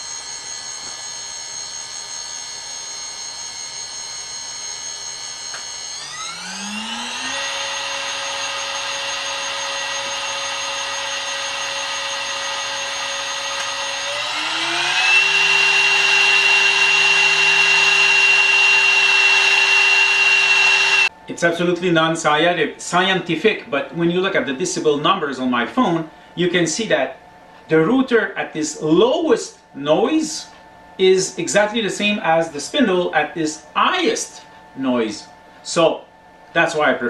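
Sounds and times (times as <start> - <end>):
spindle motor whining: 0.0 - 21.2.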